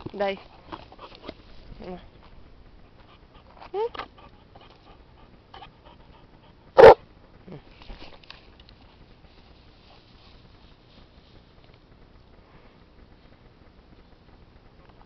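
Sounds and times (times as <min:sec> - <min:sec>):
dog barking: 0:06.8 - 0:07.0.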